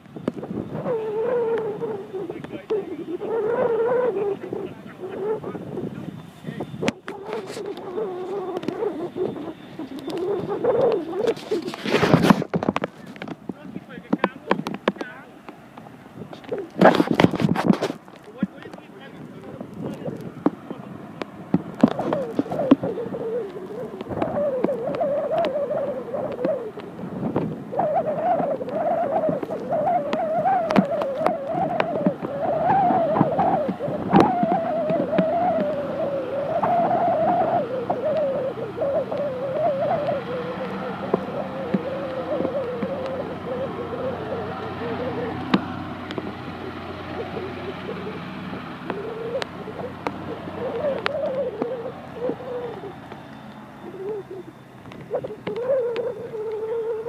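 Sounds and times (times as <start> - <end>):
jet engines whining: 0.0 - 57.0
wind buffeting microphone: 0.0 - 57.0
sharp clicks: 26.2 - 38.4, 44.2 - 57.0.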